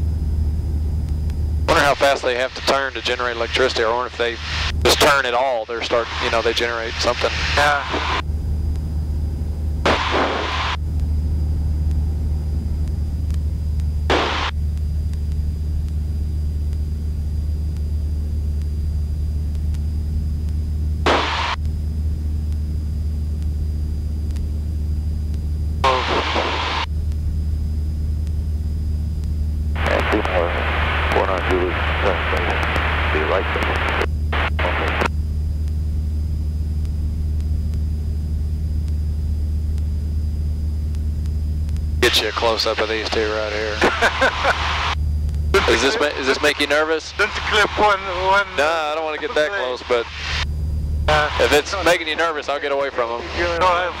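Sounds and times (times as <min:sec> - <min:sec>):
plane engine droning from cabin: 0:00.0 - 0:54.0
bursts of hiss: 0:21.1 - 0:21.6.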